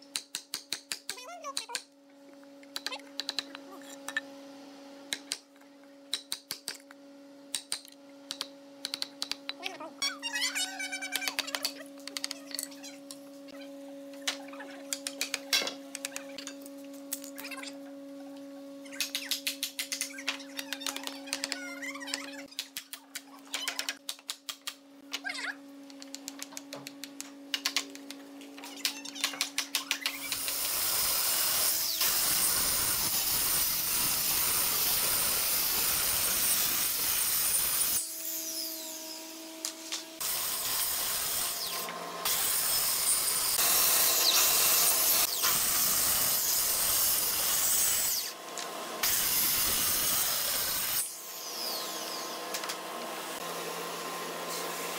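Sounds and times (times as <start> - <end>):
circular saw cutting wood: 29.3 - 54.9.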